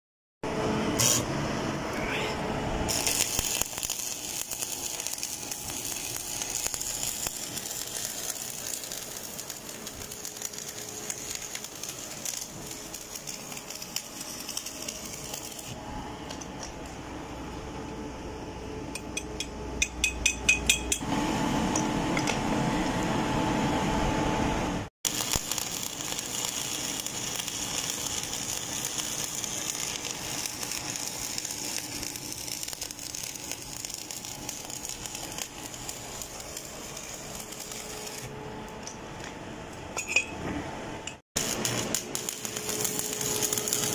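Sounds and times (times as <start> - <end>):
welding arc crackling: 0.9 - 1.3, 2.8 - 15.8, 25.0 - 39.0, 41.4 - 43.9.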